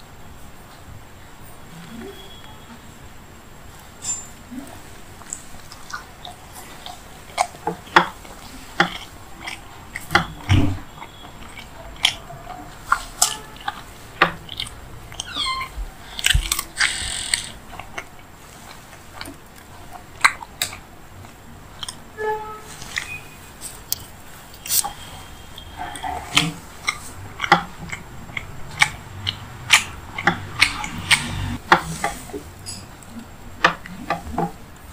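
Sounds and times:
mouth clicks: 0:04.0 - 0:19.6, 0:23.9 - 0:31.6
person chewing soft food: 0:04.7 - 0:22.2, 0:22.8 - 0:34.9
squeaky mouth sound: 0:15.1 - 0:17.6.

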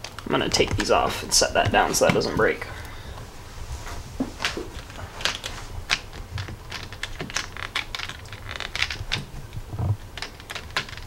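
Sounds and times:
plastic parts clicking on table: 0:04.4 - 0:09.3, 0:10.0 - 0:11.0.

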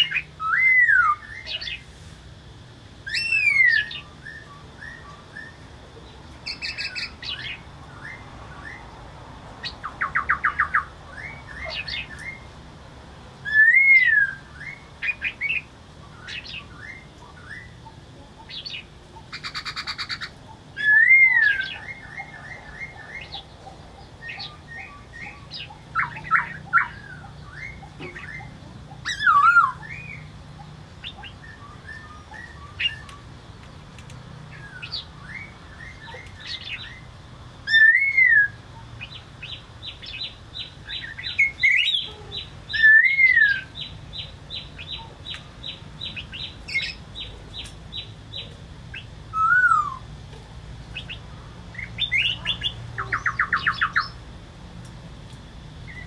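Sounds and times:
bird singing whistled phrases: 0:00.0 - 0:01.8, 0:03.1 - 0:05.6, 0:09.6 - 0:12.5, 0:13.4 - 0:17.8, 0:19.4 - 0:23.4, 0:24.2 - 0:30.3, 0:31.0 - 0:33.3, 0:37.7 - 0:38.6, 0:40.9 - 0:43.9, 0:49.0 - 0:50.1, 0:51.9 - 0:54.2.

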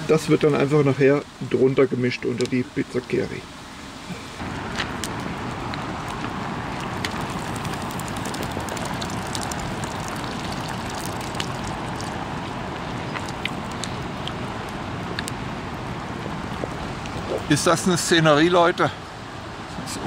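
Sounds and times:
campfire crackling: 0:01.4 - 0:19.6
mountain stream rushing: 0:04.0 - 0:20.0.

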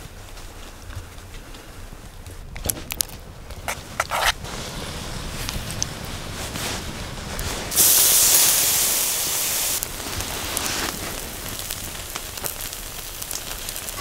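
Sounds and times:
faint crackling: 0:00.0 - 0:14.0
food sizzling on a grill: 0:07.7 - 0:14.0.

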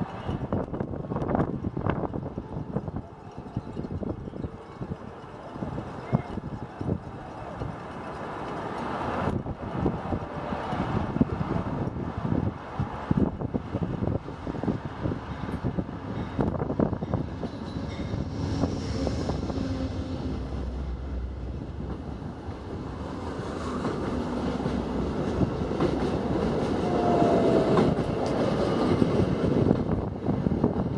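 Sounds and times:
train wheels clacking over rail joints: 0:00.0 - 0:11.2, 0:21.8 - 0:30.1
train rumble: 0:00.0 - 0:30.9.

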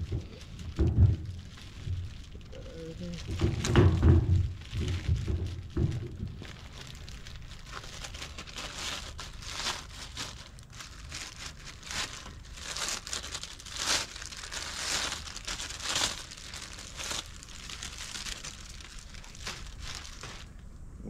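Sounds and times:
plastic bag crinkling: 0:00.0 - 0:21.0.

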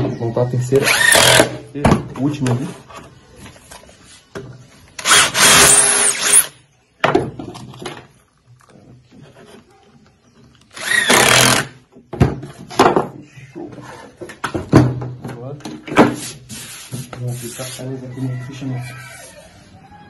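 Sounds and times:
cordless drill boring into wood: 0:00.8 - 0:01.6, 0:05.0 - 0:06.5, 0:10.7 - 0:11.8.

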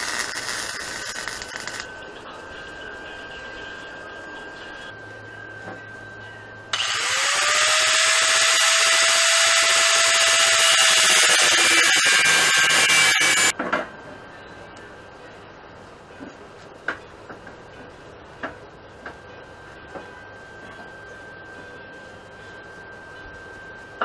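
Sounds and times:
angle grinder grinding steel: 0:00.0 - 0:01.9, 0:06.8 - 0:13.5.

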